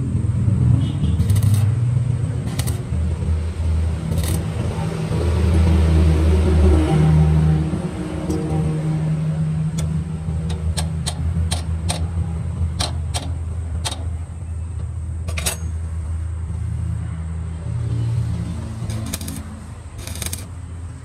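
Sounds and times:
machinery droning: 0:00.0 - 0:21.0
sharp metallic clicks and taps: 0:01.2 - 0:01.8, 0:02.4 - 0:03.3, 0:08.2 - 0:08.8, 0:09.6 - 0:16.2, 0:18.8 - 0:20.6.

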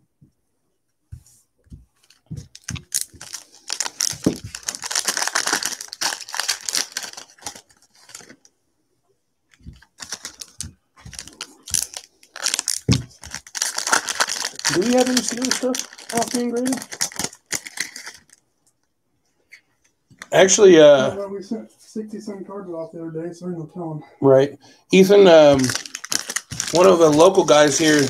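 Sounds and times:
plastic wrapper crinkling and tearing: 0:02.0 - 0:08.5, 0:09.6 - 0:18.5, 0:25.3 - 0:28.0.

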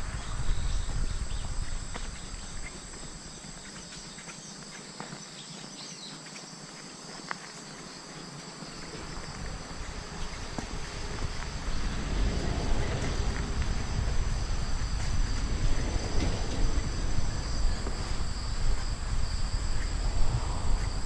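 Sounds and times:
wind rumble on microphone: 0:00.0 - 0:04.2, 0:08.7 - 0:21.0
insects chirring: 0:00.0 - 0:21.0
footsteps on leafy dirt path: 0:00.2 - 0:20.1.

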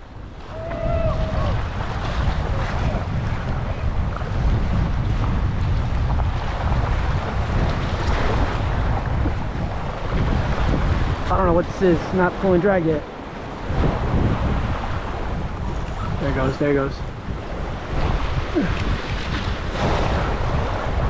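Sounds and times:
wind buffeting microphone: 0:00.0 - 0:21.0
waves washing against rocks: 0:00.4 - 0:21.0.

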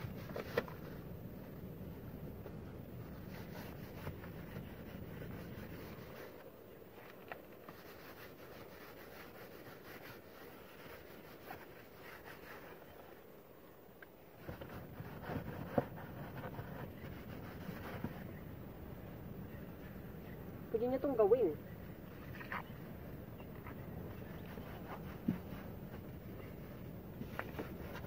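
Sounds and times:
paper towel wiping plastic: 0:02.5 - 0:06.5, 0:07.6 - 0:13.2, 0:14.4 - 0:18.3, 0:24.2 - 0:28.0.

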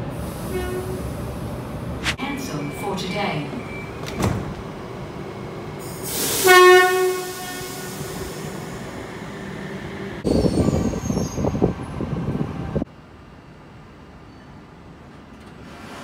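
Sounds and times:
train horn blast: 0:00.5 - 0:01.0, 0:06.4 - 0:08.0.

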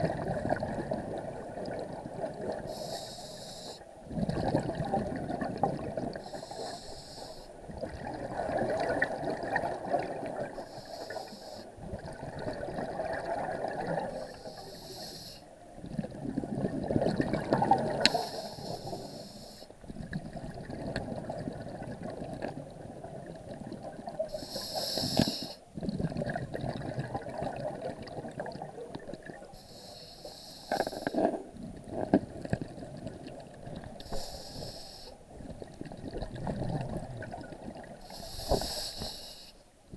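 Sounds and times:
exhaled bubbles rushing: 0:00.0 - 0:02.7, 0:04.1 - 0:06.2, 0:07.7 - 0:10.5, 0:11.8 - 0:14.2, 0:15.8 - 0:18.1, 0:19.9 - 0:24.2, 0:25.8 - 0:29.5, 0:35.4 - 0:38.0
regulator hissing inhale: 0:02.6 - 0:03.9, 0:06.2 - 0:07.5, 0:10.6 - 0:11.8, 0:14.1 - 0:15.5, 0:18.1 - 0:19.8, 0:24.3 - 0:25.6, 0:29.5 - 0:31.3, 0:34.0 - 0:35.3, 0:38.0 - 0:39.7.

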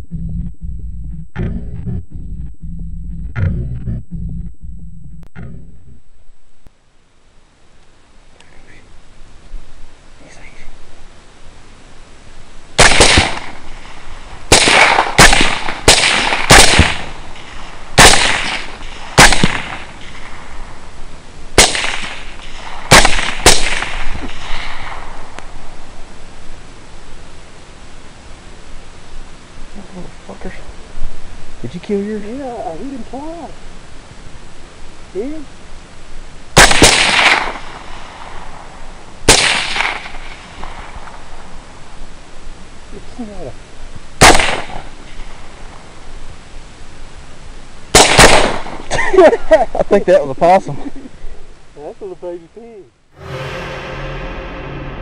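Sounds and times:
rifle shots with echo: 0:12.8 - 0:13.7, 0:14.5 - 0:20.5, 0:21.6 - 0:25.1, 0:36.6 - 0:37.8, 0:39.3 - 0:40.8, 0:44.2 - 0:44.8, 0:47.9 - 0:48.8.

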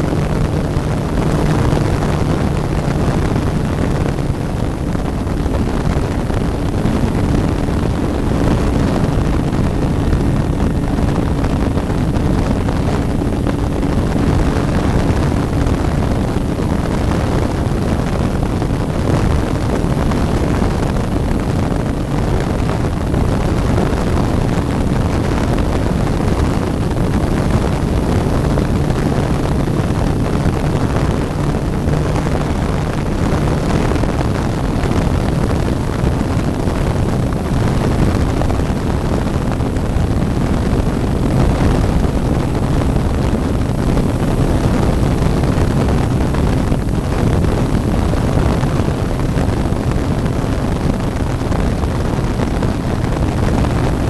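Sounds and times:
model airplane motor and propeller: 0:00.0 - 0:54.0
wind rushing over microphone: 0:00.0 - 0:54.0.

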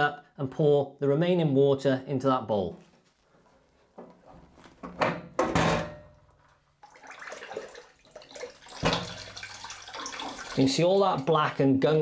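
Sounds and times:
water trickling into plastic bowl: 0:06.4 - 0:11.4.

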